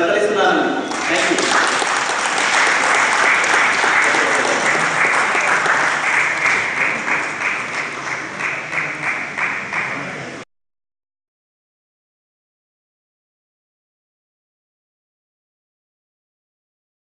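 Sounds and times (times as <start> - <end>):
audience applauding: 0.9 - 10.4.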